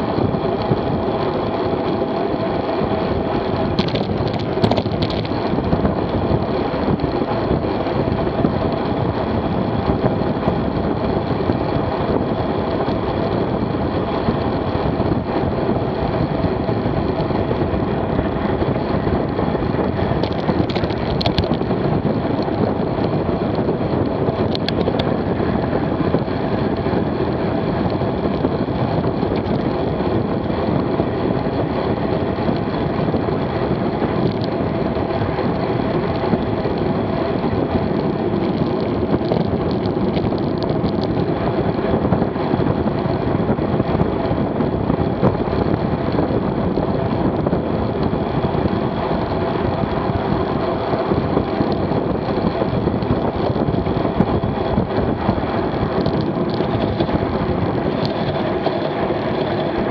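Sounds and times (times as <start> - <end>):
bike tyres on asphalt: 0.0 - 59.9
wind rush on microphone: 0.0 - 59.9.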